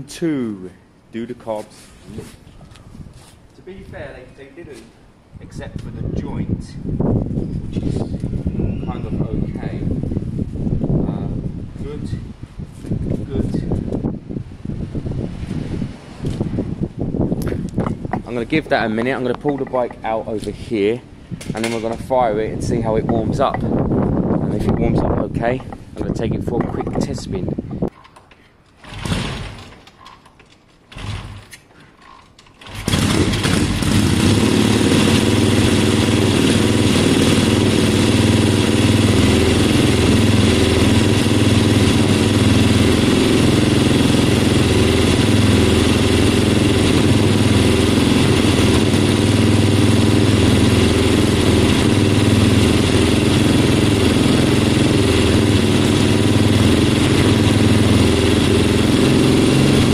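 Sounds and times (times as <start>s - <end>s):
motorcycle engine starting and running: 17.4s - 20.2s, 28.8s - 30.3s, 30.9s - 59.9s.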